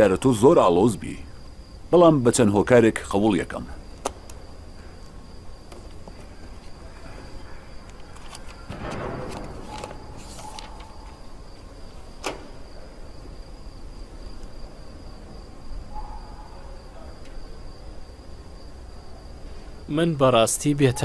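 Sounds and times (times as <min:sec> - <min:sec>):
brief rustle: 0:07.8 - 0:11.2.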